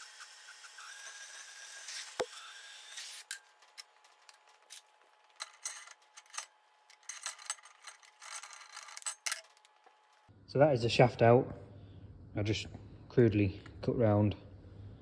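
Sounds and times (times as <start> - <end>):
metal tools clicking and tapping: 3.3 - 9.7.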